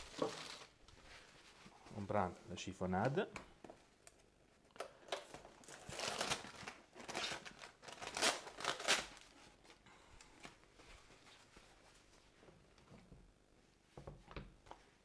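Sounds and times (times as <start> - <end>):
plastic film peeling and crinkling: 0.0 - 1.0, 5.1 - 9.8.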